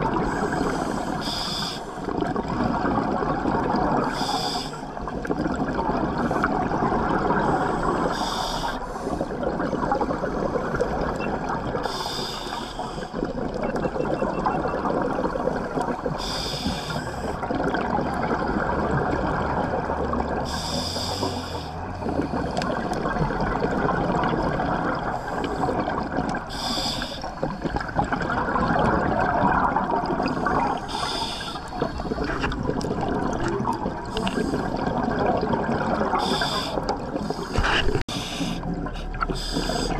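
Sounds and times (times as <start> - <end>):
underwater bubbling rumble: 0.0 - 39.9
diver breath hissing through regulator: 26.5 - 27.3, 30.8 - 32.3, 36.1 - 39.9.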